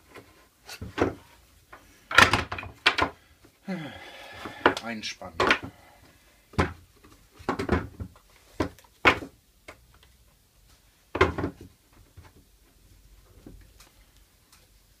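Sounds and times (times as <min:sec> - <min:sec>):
wooden blocks knocking on workbench: 0:07.4 - 0:09.3, 0:11.1 - 0:11.7.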